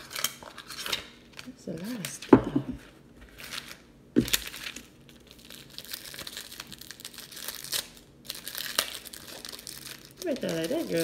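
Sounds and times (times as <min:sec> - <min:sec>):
wipe packet crinkling: 0:03.3 - 0:11.0.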